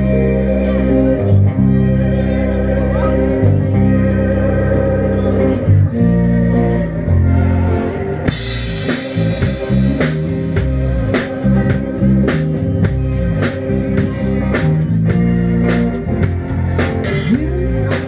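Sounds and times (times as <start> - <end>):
bass guitar: 0.0 - 18.0
electric guitars: 0.0 - 18.0
drums and cymbals: 8.3 - 18.0.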